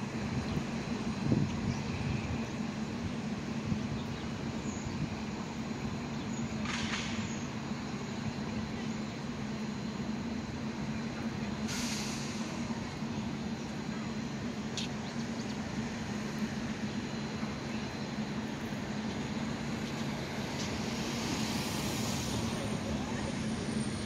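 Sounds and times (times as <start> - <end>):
idling vehicles hum: 0.0 - 24.0
air brake hiss: 11.6 - 12.6, 20.8 - 22.6.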